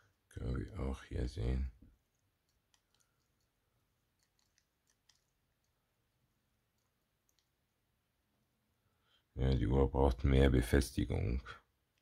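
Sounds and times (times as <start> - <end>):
small clicks from handling a watch: 2.1 - 3.6, 4.2 - 5.8, 6.7 - 7.5.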